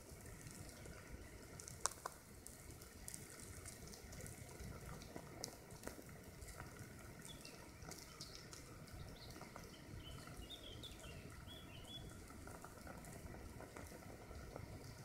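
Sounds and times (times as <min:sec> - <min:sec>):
bird chirping: 0:09.0 - 0:12.1.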